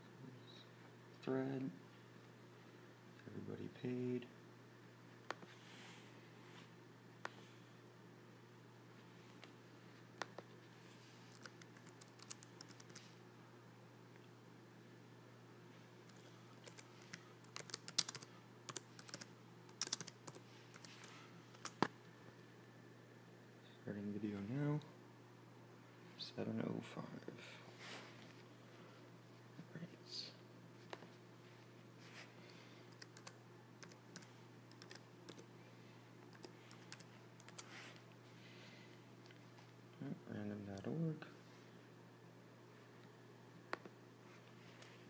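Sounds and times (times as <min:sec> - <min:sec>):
steady low hum: 0:00.0 - 0:45.0
keyboard typing: 0:11.3 - 0:13.1, 0:16.1 - 0:21.9, 0:32.9 - 0:35.5, 0:36.3 - 0:37.7.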